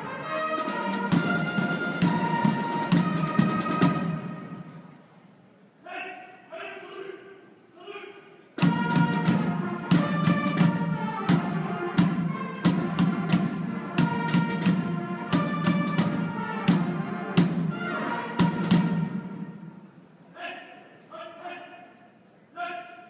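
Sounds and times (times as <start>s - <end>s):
brass and drum band playing: 0.0s - 4.9s, 8.6s - 20.0s.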